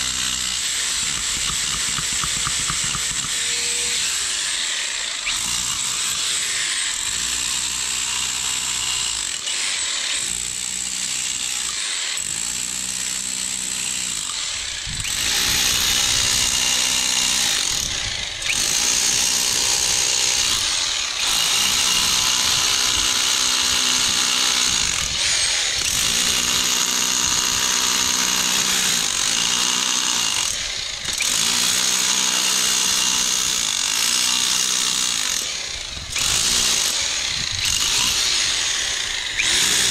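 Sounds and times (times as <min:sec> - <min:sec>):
power tool whining against stone: 0:00.0 - 0:39.9.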